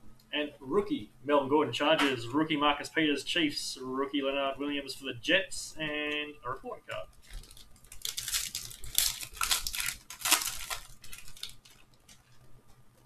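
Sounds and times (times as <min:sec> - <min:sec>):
foil wrapper crinkling: 0:06.9 - 0:12.5.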